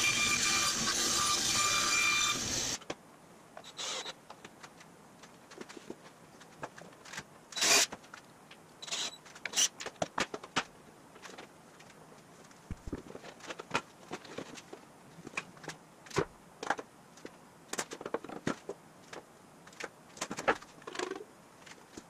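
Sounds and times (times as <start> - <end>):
band saw cutting board: 0.0 - 2.8.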